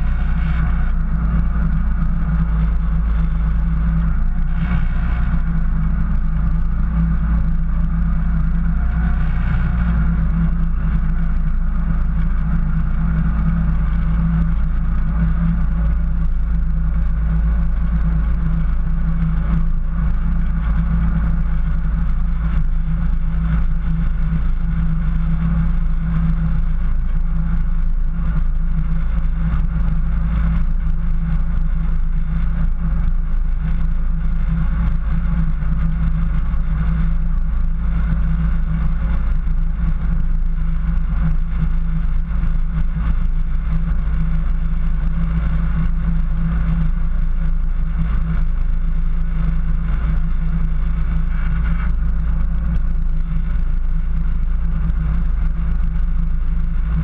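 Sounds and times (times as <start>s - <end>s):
engine and drivetrain drone: 0.0s - 57.0s.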